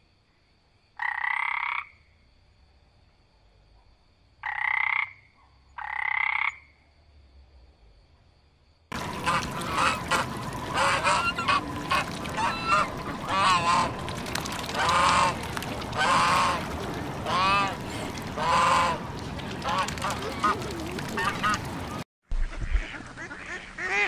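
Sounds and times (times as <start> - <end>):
frog calls: 1.0 - 2.1, 4.4 - 6.8, 8.9 - 19.0
steady background noise: 8.9 - 22.0
swans and ducks calling: 8.9 - 22.0.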